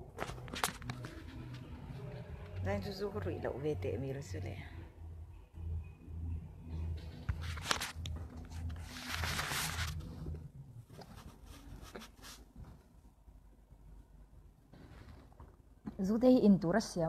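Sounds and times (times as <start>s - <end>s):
low pulsing hum: 0.0s - 11.5s
rustling rub on microphone: 7.3s - 12.9s.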